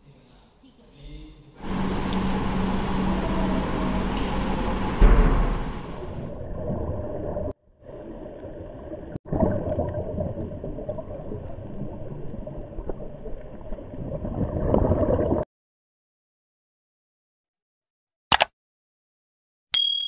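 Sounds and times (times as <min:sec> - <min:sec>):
underwater gurgling and bubbling: 0:05.0 - 0:15.4.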